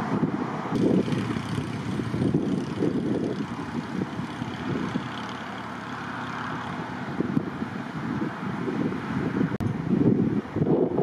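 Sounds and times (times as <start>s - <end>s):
wind buffeting microphone: 0.0s - 11.0s
vehicle engine idling: 0.8s - 8.1s.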